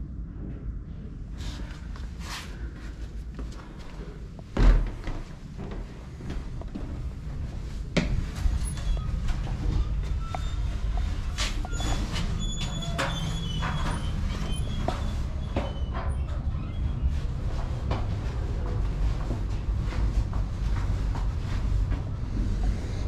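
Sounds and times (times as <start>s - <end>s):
low traffic rumble: 0.0s - 23.0s
faint high squeals: 8.4s - 17.3s.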